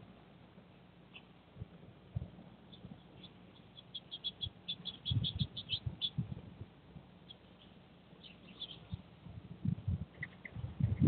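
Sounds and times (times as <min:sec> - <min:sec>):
songbird chirping: 0:00.7 - 0:01.4, 0:02.5 - 0:06.3, 0:07.2 - 0:09.2, 0:10.1 - 0:11.0
dull low thumps: 0:08.9 - 0:11.0.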